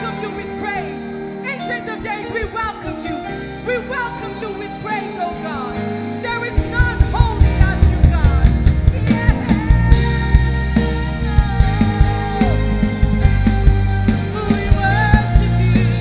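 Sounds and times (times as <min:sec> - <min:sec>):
held band chords: 0:00.0 - 0:16.0
woman singing into microphone: 0:00.0 - 0:16.0
drums and bass beat: 0:04.9 - 0:16.0.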